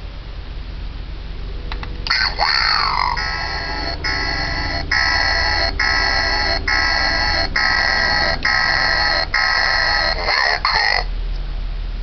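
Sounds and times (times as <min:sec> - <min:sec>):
harsh alarm-like buzzing tone: 0:02.0 - 0:11.1
short electronic warbling: 0:02.1 - 0:11.1.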